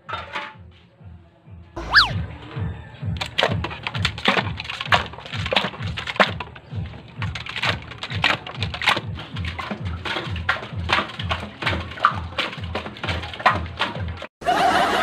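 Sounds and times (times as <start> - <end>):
background music with low beat: 0.1 - 14.2
poles knocking metal canisters: 3.2 - 14.3.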